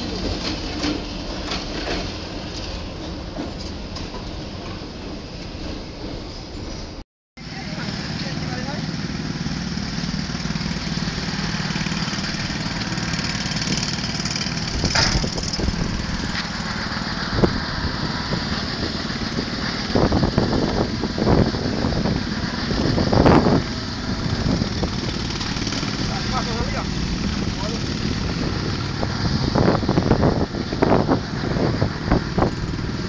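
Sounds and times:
small engine running: 0:07.5 - 0:33.0
knocks and clatters: 0:14.8 - 0:15.7.

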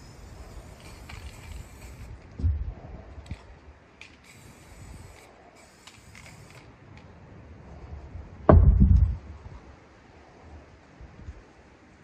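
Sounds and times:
aerosol spray can hissing: 0:04.3 - 0:06.5
loud low thump and rumble: 0:08.4 - 0:09.4.

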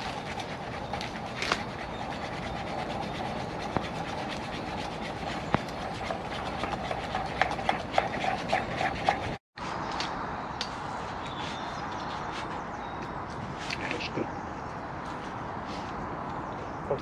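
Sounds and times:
campfire crackling: 0:00.0 - 0:09.2.

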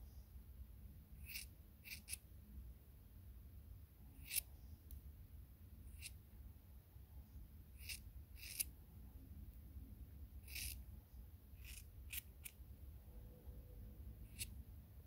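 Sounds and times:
scissors snipping fur: 0:01.2 - 0:02.2, 0:04.2 - 0:04.5, 0:07.8 - 0:08.7, 0:10.4 - 0:10.8, 0:14.3 - 0:14.5.

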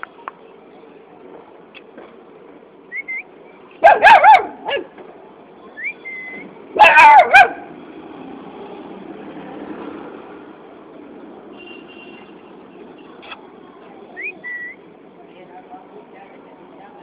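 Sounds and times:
puppy yipping: 0:03.8 - 0:04.9, 0:06.1 - 0:07.6.

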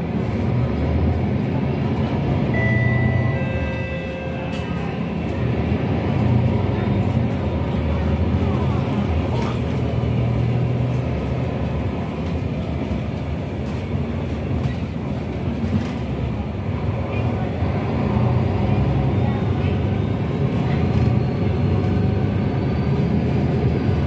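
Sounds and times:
bus engine and road drone: 0:00.0 - 0:24.0.

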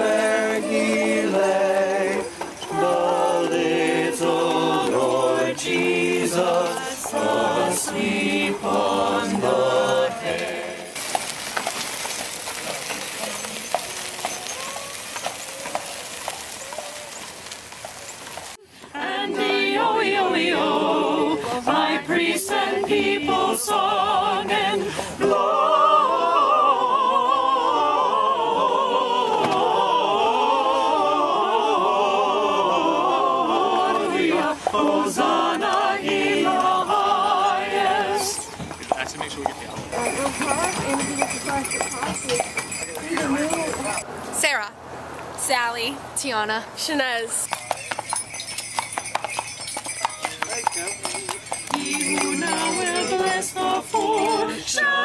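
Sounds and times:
group singing a carol: 0:00.0 - 0:11.5, 0:18.6 - 0:44.1, 0:50.9 - 0:55.0
steady outdoor noise: 0:00.0 - 0:55.0.

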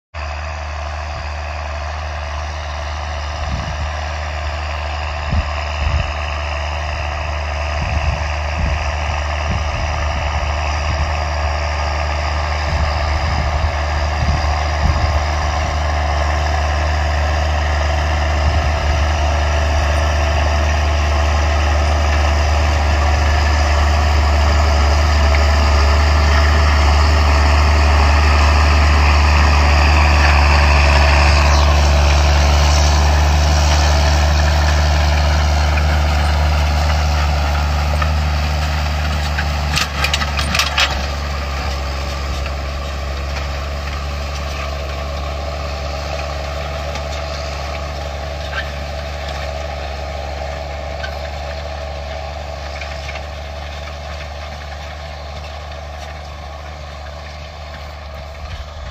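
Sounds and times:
tractor diesel engine droning: 0:00.2 - 0:58.9
clatter of sharp knocks: 0:39.1 - 0:41.2.

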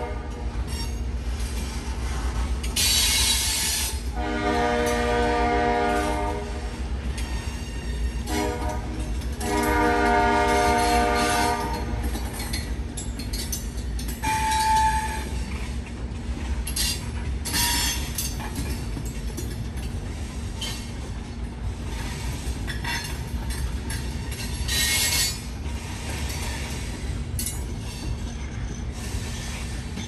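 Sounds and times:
locomotive air horn blasts: 0:00.0 - 0:00.6, 0:04.1 - 0:06.8, 0:08.2 - 0:12.0
freight train rumbling: 0:00.0 - 0:30.0
train clanking: 0:00.0 - 0:30.0.

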